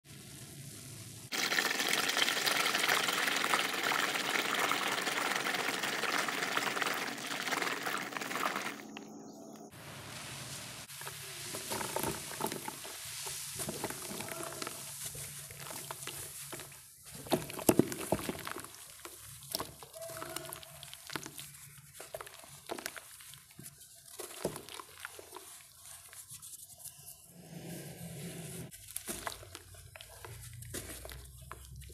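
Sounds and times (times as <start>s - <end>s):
cement lumps hissing in water: 0.1s - 8.9s, 9.8s - 26.2s
gritty crumbling and crackling: 11.0s - 26.1s, 28.7s - 31.9s.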